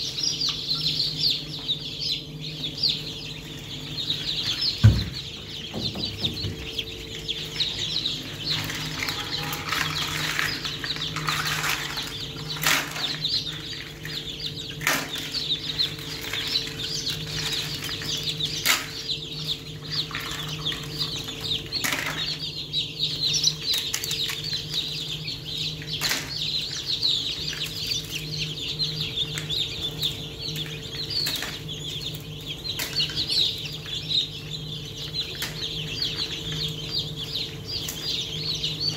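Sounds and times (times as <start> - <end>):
chicks peeping: 0.0 - 38.9
knocks and rustles of eggshells: 8.3 - 19.1.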